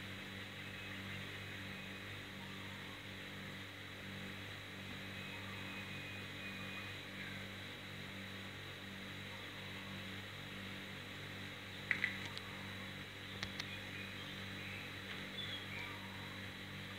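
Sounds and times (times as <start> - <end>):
low electrical hum with hiss: 0.0 - 16.9
sharp clicks: 11.8 - 12.5, 13.4 - 13.8.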